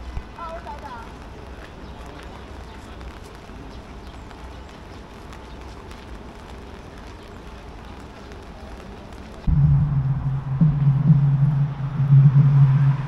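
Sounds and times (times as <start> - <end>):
low hum and hiss: 9.4 - 13.0.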